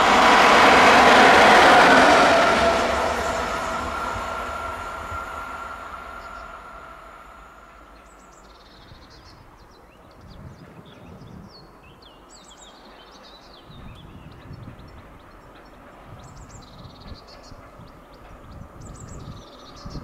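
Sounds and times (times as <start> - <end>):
low rumble: 0.0 - 8.3
passing train running noise: 0.0 - 20.0.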